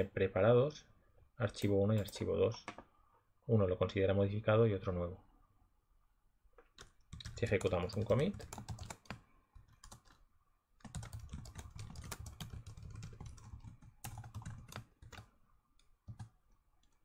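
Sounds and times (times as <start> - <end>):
faint keyboard typing: 1.5 - 2.8, 6.6 - 17.0.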